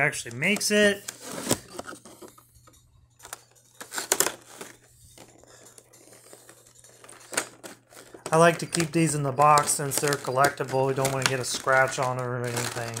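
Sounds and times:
plastic packaging crinkling: 0:00.0 - 0:13.0
sharp plastic clicks: 0:07.3 - 0:13.0.

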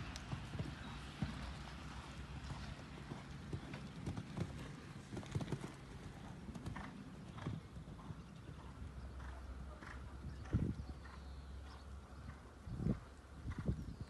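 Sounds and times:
horse hooves on sand: 0:00.0 - 0:13.8.

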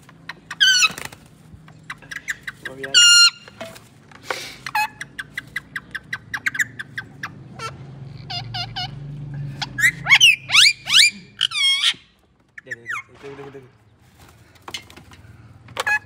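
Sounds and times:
parakeet squawks: 0:00.2 - 0:01.1, 0:01.9 - 0:03.6, 0:04.6 - 0:13.2
parakeet chattering chirps: 0:01.7 - 0:03.5, 0:04.6 - 0:13.1
parakeet rising calls: 0:04.7 - 0:12.1.

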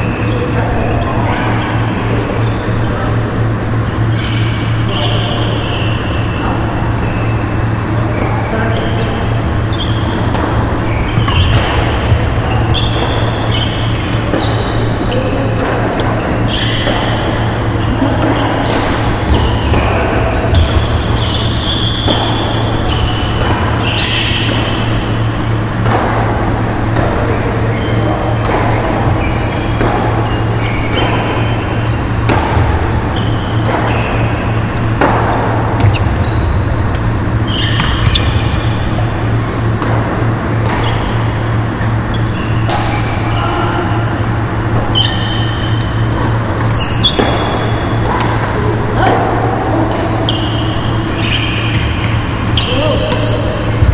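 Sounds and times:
steady low hum: 0:00.0 - 0:53.9
shoe squeaks: 0:03.9 - 0:15.6, 0:16.2 - 0:25.3, 0:27.3 - 0:32.3, 0:33.0 - 0:35.0, 0:35.8 - 0:39.4, 0:40.7 - 0:43.9, 0:44.7 - 0:48.0, 0:49.7 - 0:53.9
racket hitting shuttlecock: 0:09.4 - 0:53.9.

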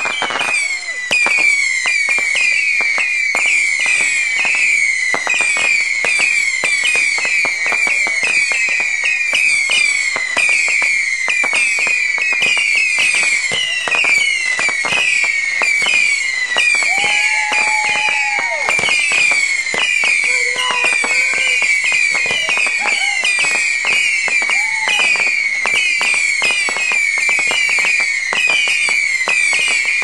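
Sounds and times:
firework whistles falling in pitch: 0:00.0 - 0:30.0
rapid sharp firework pops: 0:00.0 - 0:30.0.

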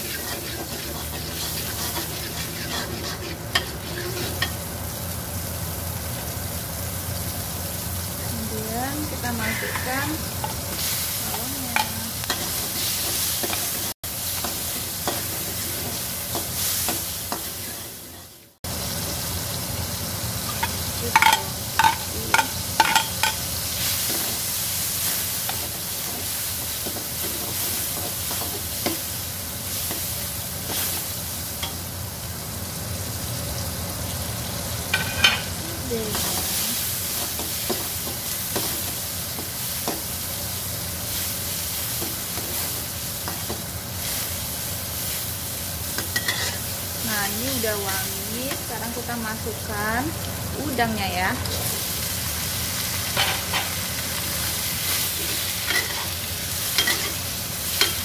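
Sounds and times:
metal spatula stirring: 0:00.0 - 0:04.6, 0:46.2 - 0:46.6, 0:55.2 - 0:56.1, 0:56.8 - 0:57.2
vegetables sizzling in butter: 0:00.0 - 0:58.0.

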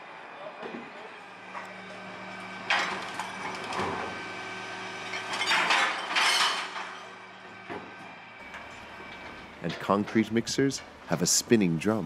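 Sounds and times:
compactor low hum: 0:00.0 - 0:12.0
trash crunching and creaking: 0:01.5 - 0:10.9.

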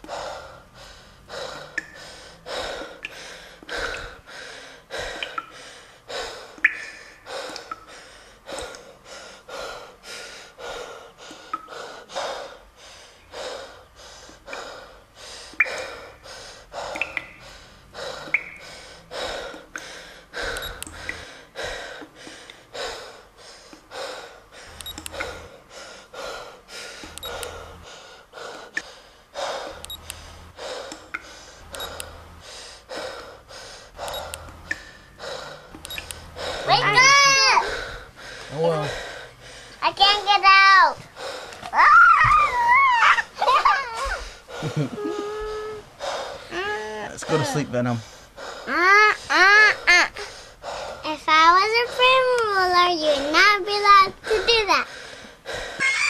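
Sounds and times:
person panting hard: 0:00.0 - 0:56.0.

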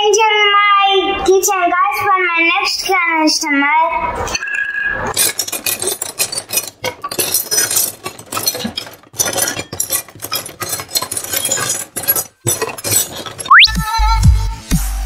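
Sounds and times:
plastic toy dishes clattering: 0:05.1 - 0:13.6.

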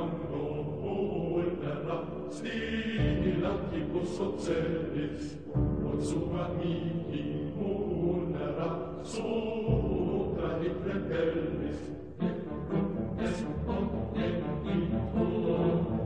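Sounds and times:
voices chanting long notes: 0:06.3 - 0:16.0.

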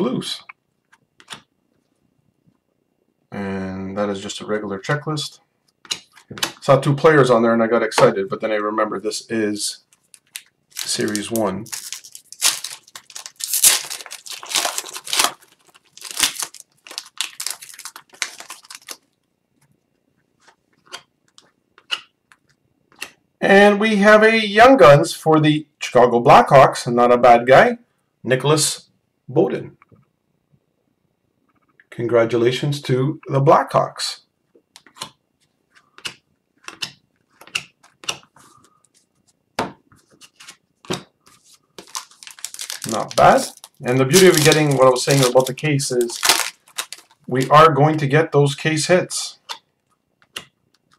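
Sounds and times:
wrapper tearing: 0:09.9 - 0:19.2, 0:41.3 - 0:47.6
cards clicking and tapping on desk: 0:20.4 - 0:23.2, 0:34.8 - 0:38.4.

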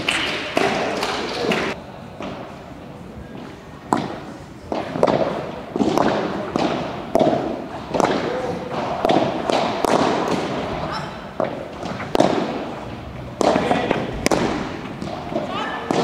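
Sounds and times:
padel ball hit by rackets: 0:03.9 - 0:10.7, 0:11.4 - 0:12.7, 0:13.4 - 0:16.0
ball bouncing on court: 0:13.4 - 0:16.0.

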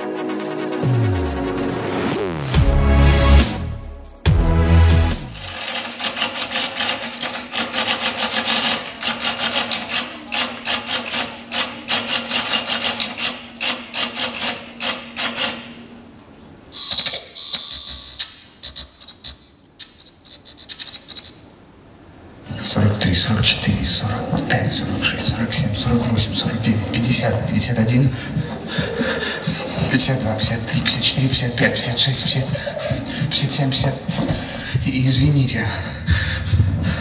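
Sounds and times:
rapid clicking and scratching: 0:05.3 - 0:15.7, 0:23.4 - 0:35.2
faint low hum: 0:15.8 - 0:37.0.

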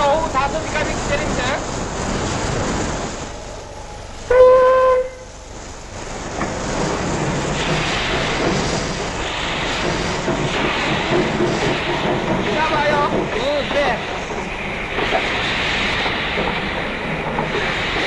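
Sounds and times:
locomotive rushing noise: 0:00.0 - 0:18.0
steam locomotive whistle: 0:04.3 - 0:05.3.

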